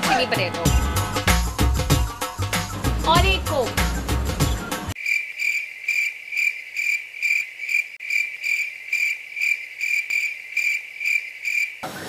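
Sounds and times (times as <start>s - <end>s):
cricket chirping: 5.0s - 11.8s.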